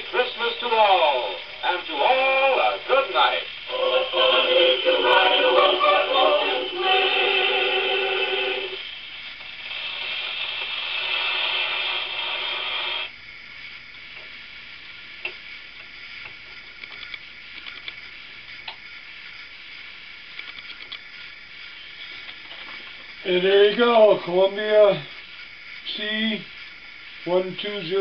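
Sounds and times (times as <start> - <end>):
faint hiss: 0.0 - 28.0
music from small speaker: 3.2 - 8.8.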